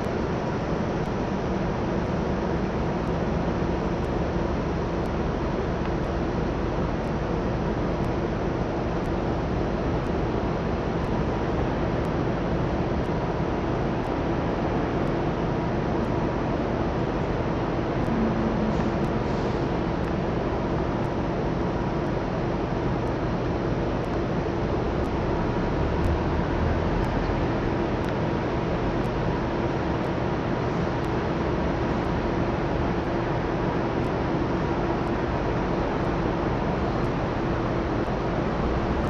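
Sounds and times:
distant traffic: 0:17.2 - 0:21.3.

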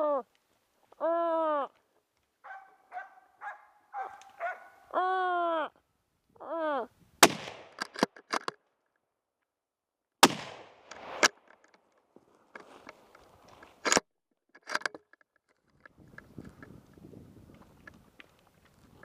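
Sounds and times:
rifle shots echoing: 0:07.2 - 0:08.0, 0:10.2 - 0:11.4
sharp clicks and knocks: 0:07.6 - 0:08.6, 0:13.8 - 0:16.7.

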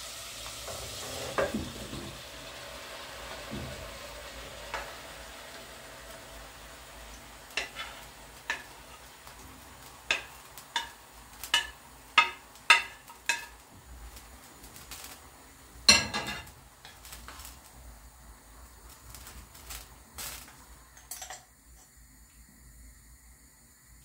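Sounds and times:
kitchenware clinking: 0:07.6 - 0:08.8, 0:10.1 - 0:13.6, 0:15.9 - 0:16.6, 0:20.9 - 0:21.9.

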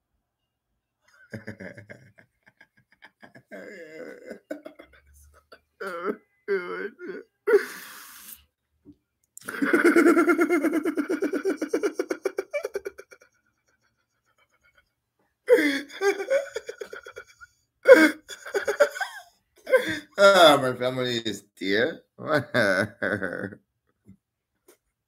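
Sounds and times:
man laughing hard: 0:01.3 - 0:07.2, 0:09.4 - 0:13.4, 0:15.5 - 0:20.2, 0:22.3 - 0:23.6.

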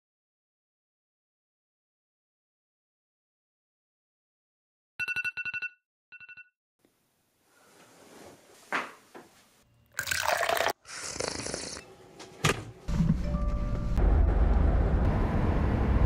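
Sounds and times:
liquid pouring: 0:10.0 - 0:10.8.

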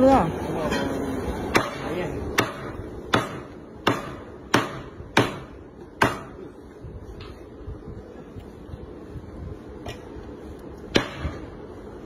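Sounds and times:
cleaver chopping meat on wood: 0:01.5 - 0:06.4, 0:10.9 - 0:11.4.

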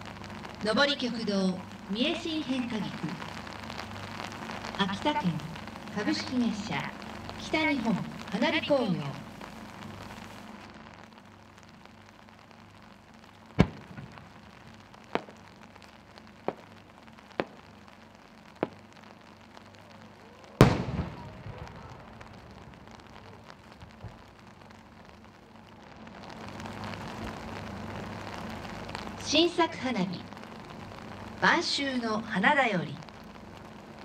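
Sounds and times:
firework launch report: 0:00.0 - 0:34.0
small firework pops: 0:09.4 - 0:29.2
firework shell booming: 0:13.6 - 0:14.4, 0:20.6 - 0:22.9.

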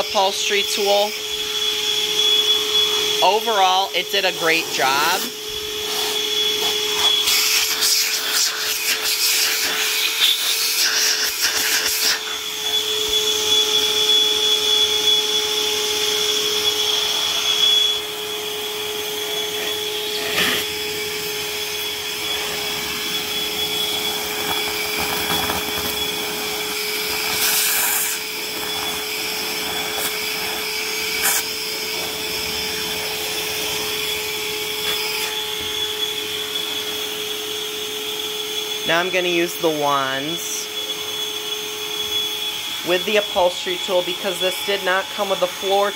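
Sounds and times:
nozzle scraping over carpet: 0:00.0 - 0:14.2, 0:18.6 - 0:37.1
vacuum cleaner whining: 0:00.0 - 0:45.9.

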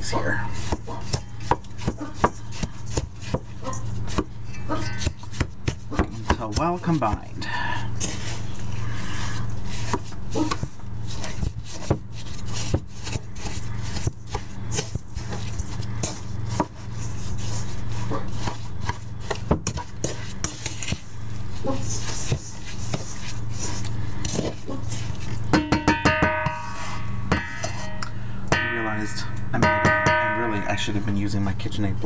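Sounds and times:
steady low hum: 0:00.0 - 0:32.0
wooden spoon scraping bowl: 0:08.0 - 0:25.4.

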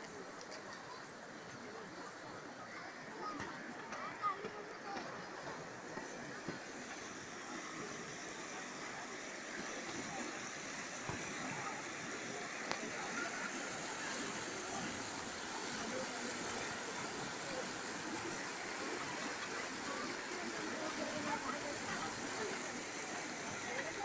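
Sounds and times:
river water rushing over rocks: 0:05.1 - 0:24.0.

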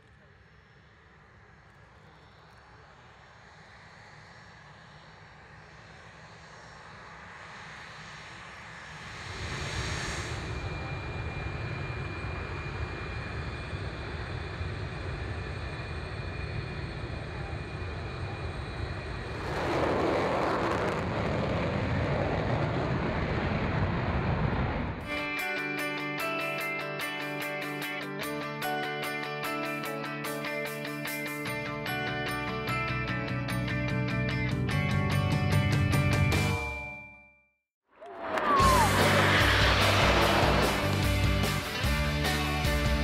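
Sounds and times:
jet engine turbine whine: 0:00.0 - 0:25.4, 0:38.1 - 0:43.0.

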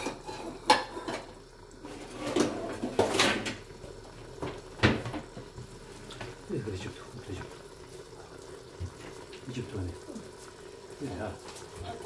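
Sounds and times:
kitchen knocks and clunks: 0:02.2 - 0:03.6, 0:04.4 - 0:06.4.

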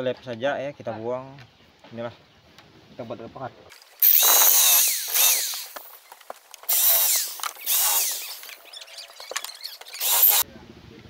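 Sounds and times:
electric drill whining: 0:04.0 - 0:10.4.

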